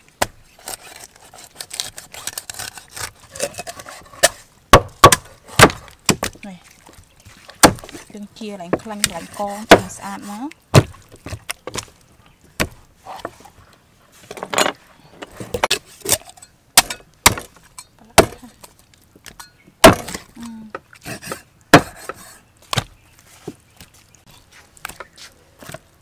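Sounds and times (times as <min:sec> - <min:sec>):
cleaver chopping on wooden block: 0:04.2 - 0:06.4, 0:07.6 - 0:08.0, 0:08.7 - 0:10.1, 0:16.8 - 0:17.5, 0:19.8 - 0:20.2, 0:21.1 - 0:22.9.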